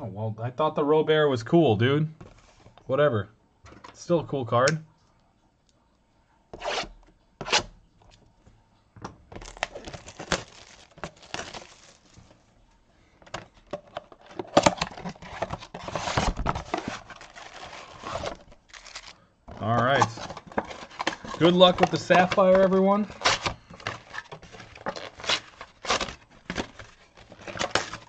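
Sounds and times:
cardboard box opening: 9.4 - 12.2, 13.7 - 28.0
plastic wrap tearing and crinkling: 9.4 - 12.4, 14.2 - 28.0.

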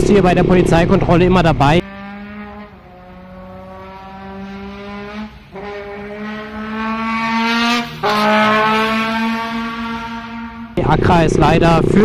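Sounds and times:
trombone sliding upward: 1.8 - 10.8.

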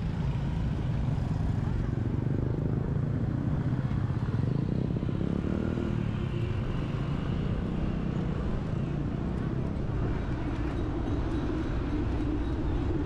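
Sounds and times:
motorbike traffic: 0.0 - 13.0
wind rumble on microphone: 0.0 - 13.0.

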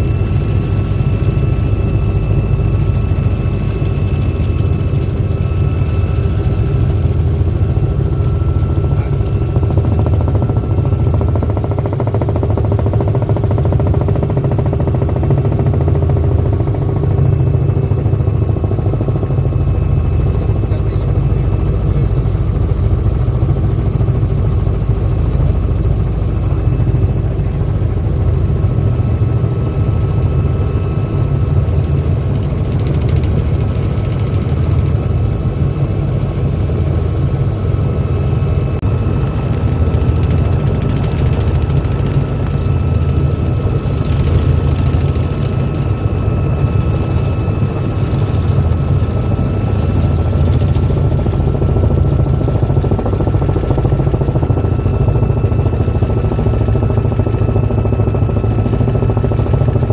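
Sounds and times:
constant high whine: 0.0 - 59.9
helicopter rotor and engine drone: 0.0 - 59.9.

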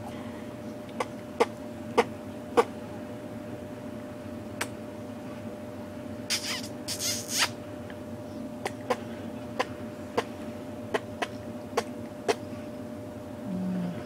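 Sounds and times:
faint steady hum: 0.0 - 14.0
woman making kissing sounds: 6.3 - 7.6.

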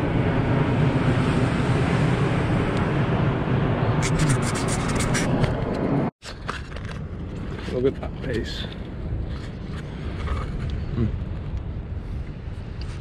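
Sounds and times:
jet airliner roar: 0.0 - 6.1.

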